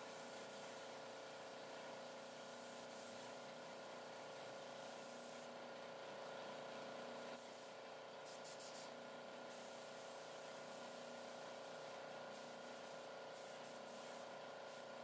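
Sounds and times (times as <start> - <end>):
spray gun hissing: 1.5 - 5.5, 9.5 - 14.9.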